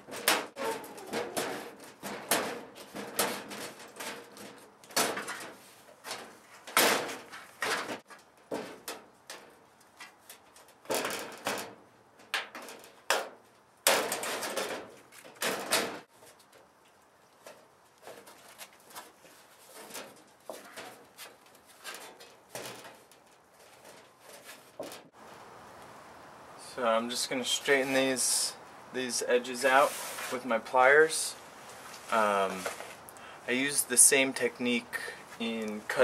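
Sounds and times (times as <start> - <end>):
metal sheet tearing: 0.0 - 8.0
faint clicks and rustles: 0.0 - 26.0, 31.6 - 33.3
scraping crinkling bursts: 12.6 - 25.9, 29.4 - 33.7.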